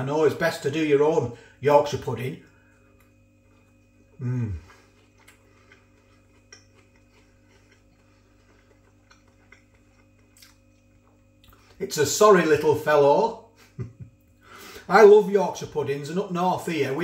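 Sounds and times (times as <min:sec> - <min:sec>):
man humming mmm: 0:04.1 - 0:04.9
eating and cutlery clicks: 0:05.2 - 0:10.6.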